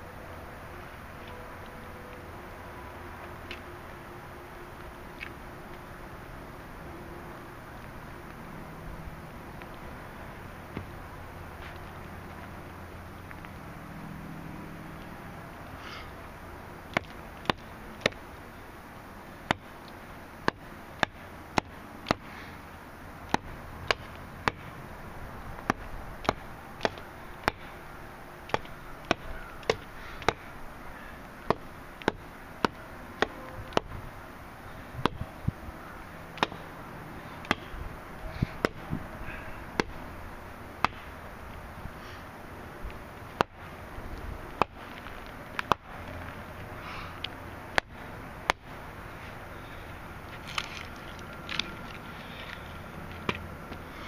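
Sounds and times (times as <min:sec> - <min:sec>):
machete chopping wooden stick: 0:16.9 - 0:18.2, 0:19.4 - 0:19.8, 0:20.4 - 0:22.3, 0:23.3 - 0:24.7, 0:25.6 - 0:27.8, 0:28.5 - 0:30.5, 0:31.4 - 0:34.0, 0:35.0 - 0:35.3, 0:36.4 - 0:36.7, 0:37.4 - 0:37.8, 0:38.5 - 0:39.0, 0:39.8 - 0:40.0, 0:40.8 - 0:41.1, 0:44.5 - 0:45.8, 0:47.7 - 0:48.7.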